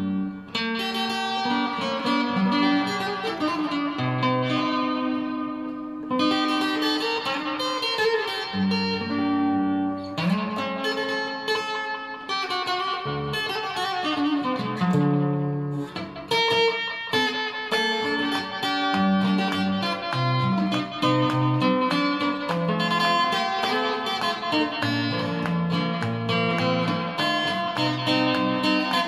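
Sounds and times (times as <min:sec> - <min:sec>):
fingerstyle acoustic guitar: 0:00.0 - 0:29.0.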